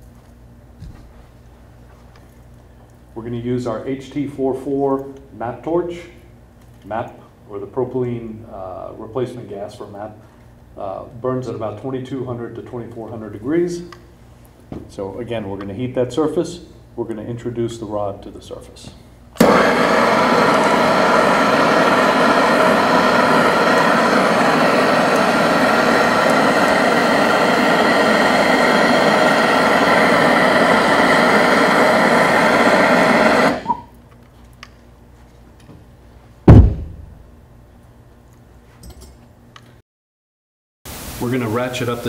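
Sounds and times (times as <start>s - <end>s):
gas torch rushing hiss: 19.4s - 33.9s, 40.9s - 42.0s
torch lighting click: 19.4s - 34.0s
sharp thump: 36.5s - 37.2s.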